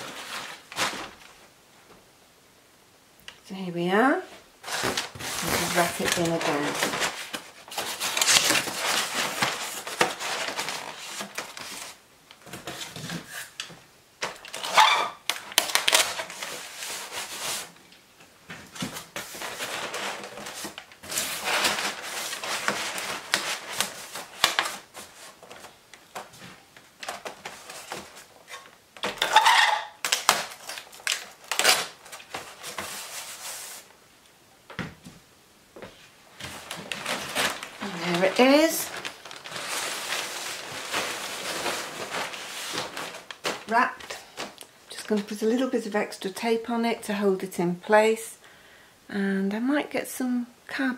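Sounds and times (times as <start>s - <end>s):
cardboard rustling and scraping: 0.0s - 1.4s, 4.3s - 17.8s, 18.4s - 34.0s, 35.8s - 44.6s
packing tape pulled off roll: 4.6s - 17.7s, 18.8s - 33.9s, 36.4s - 44.7s.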